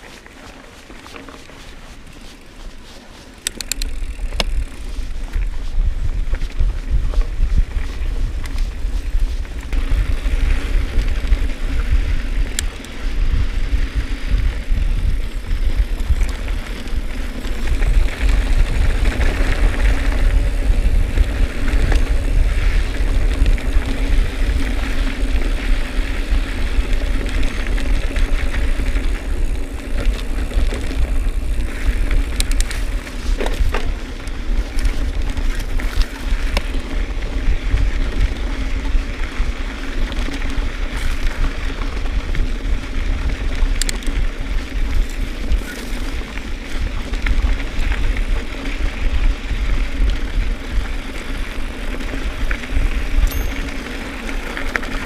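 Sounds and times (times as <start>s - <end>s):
bike tyre noise: 0.0s - 55.0s
wind buffeting microphone: 1.6s - 55.0s
bike knocks and rattles: 14.0s - 41.8s.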